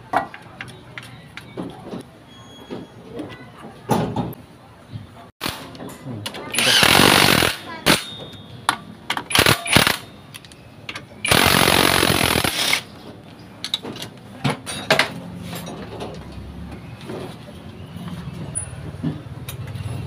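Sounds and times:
impact wrench hammering a bolt: 0:06.5 - 0:08.1, 0:11.3 - 0:12.8.

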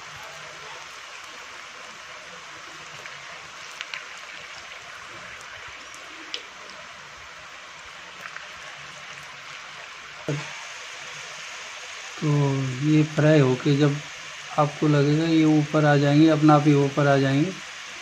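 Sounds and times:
food deep-frying in oil: 0:00.0 - 0:18.0
crackles and pops of oil: 0:03.0 - 0:04.8, 0:05.4 - 0:06.8, 0:08.2 - 0:09.3.

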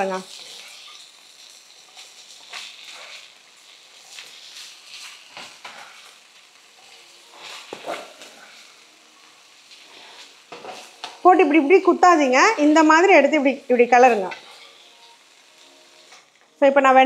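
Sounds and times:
faint sizzle of frying: 0:00.0 - 0:17.0
spatula scraping a pan: 0:00.2 - 0:11.1, 0:13.9 - 0:15.2.

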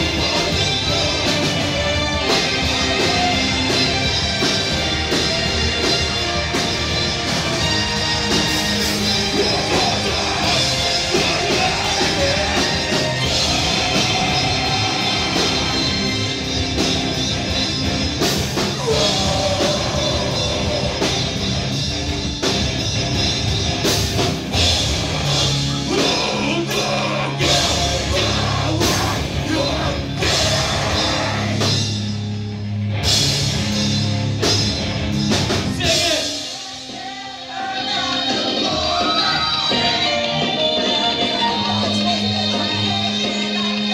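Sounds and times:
electric bass guitar: 0:00.0 - 0:36.2
drum kit: 0:00.0 - 0:43.9
vocals into a microphone: 0:09.3 - 0:16.2, 0:18.7 - 0:21.4, 0:25.4 - 0:31.8, 0:35.7 - 0:43.9.

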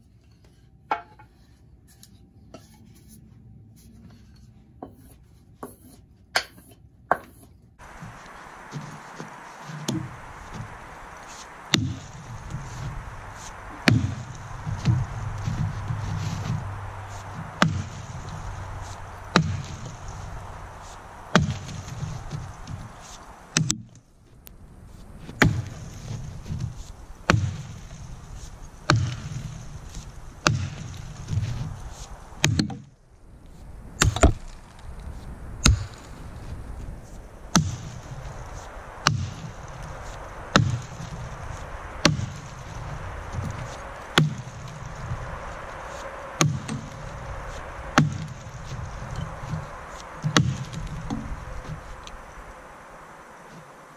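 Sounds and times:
axe chopping log: 0:07.9 - 0:23.9, 0:25.3 - 0:26.7, 0:27.3 - 0:27.8, 0:28.9 - 0:29.7, 0:30.4 - 0:31.8, 0:32.4 - 0:32.8, 0:39.0 - 0:41.4, 0:42.0 - 0:44.6, 0:46.4 - 0:51.4.

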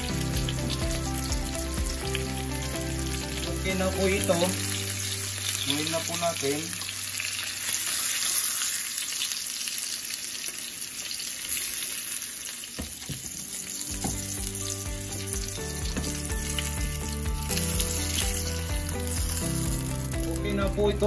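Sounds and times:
soft background music: 0:00.0 - 0:07.3, 0:13.4 - 0:21.0
fish sizzling in a pan: 0:00.0 - 0:21.0
spatula knocking on pan: 0:13.9 - 0:14.5, 0:15.8 - 0:16.3.

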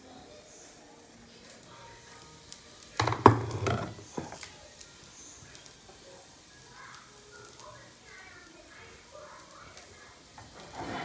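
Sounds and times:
clatter of knocks and thumps: 0:03.0 - 0:04.4.

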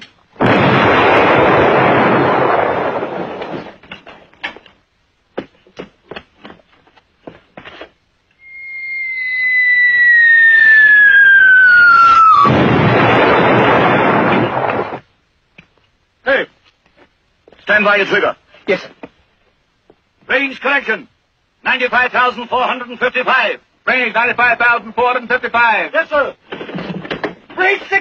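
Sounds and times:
heavy gun firing: 0:00.4 - 0:03.7
loud explosion: 0:00.4 - 0:03.8, 0:09.6 - 0:15.0
shell whistling: 0:08.4 - 0:12.5.

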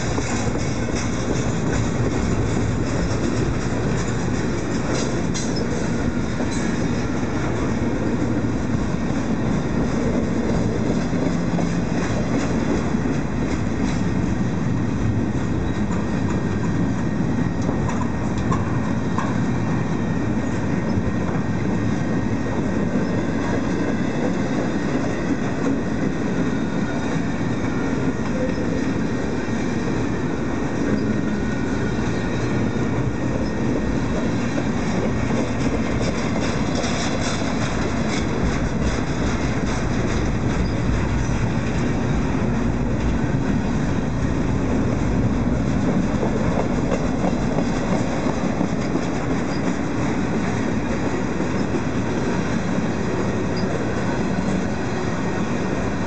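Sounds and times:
train wheel clicks: 0:00.0 - 0:07.2, 0:33.3 - 0:43.4, 0:44.3 - 0:54.7
freight train wheels rumbling: 0:00.0 - 0:56.0.

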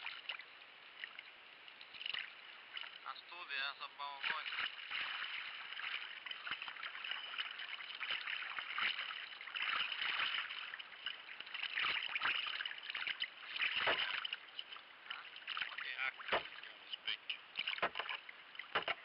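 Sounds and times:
water splashing off paddle: 0:04.1 - 0:19.0.

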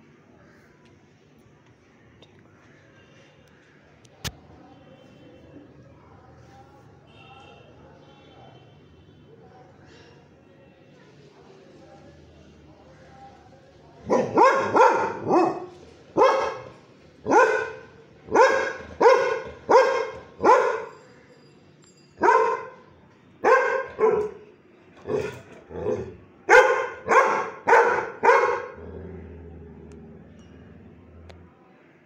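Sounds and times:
dog barking: 0:14.0 - 0:21.0, 0:22.2 - 0:22.8, 0:23.4 - 0:24.4, 0:25.1 - 0:28.9.

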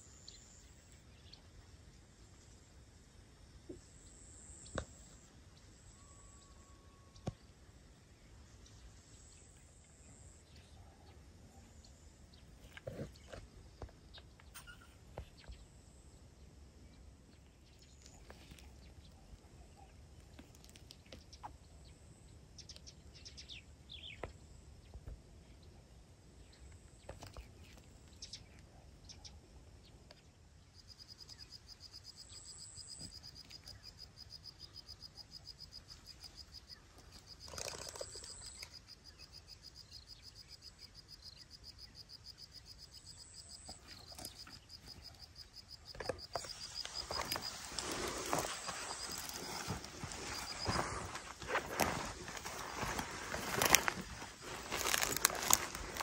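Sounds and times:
short bird chirps: 0:14.5 - 0:15.0.

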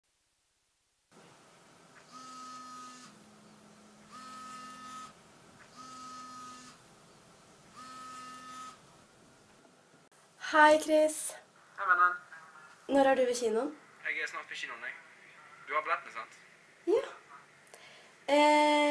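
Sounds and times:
smartphone ringtone: 0:05.8 - 0:06.8, 0:07.8 - 0:08.8.

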